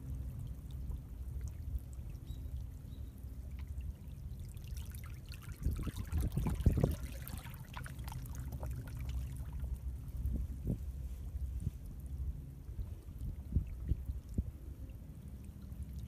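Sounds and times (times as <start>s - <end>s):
steady low rumble: 0.0s - 16.0s
water splashing: 3.6s - 9.6s
seawater gurgling between rocks: 5.2s - 9.5s.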